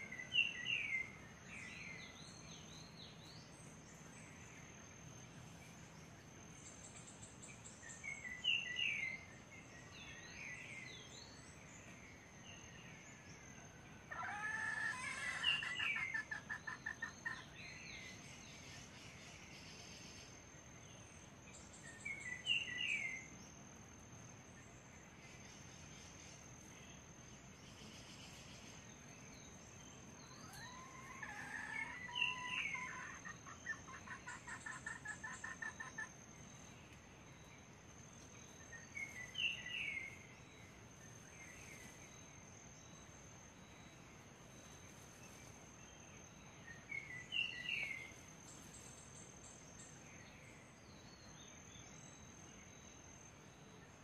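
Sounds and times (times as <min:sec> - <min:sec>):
junglefowl pulsed call: 0:14.1 - 0:17.6, 0:30.4 - 0:36.2
high bird calls: 0:14.1 - 0:18.1, 0:30.3 - 0:36.2.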